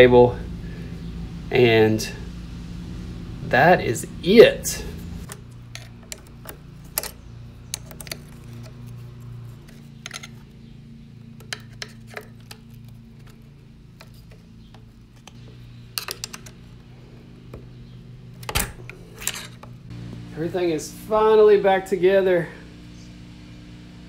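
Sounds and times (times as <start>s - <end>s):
steady low hum: 0.0s - 24.0s
small metallic clicks and taps: 5.2s - 9.0s.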